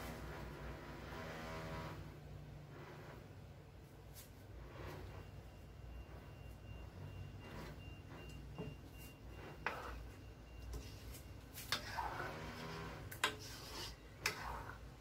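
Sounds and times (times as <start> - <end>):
spoon stirring thick stew: 13.1 - 14.9.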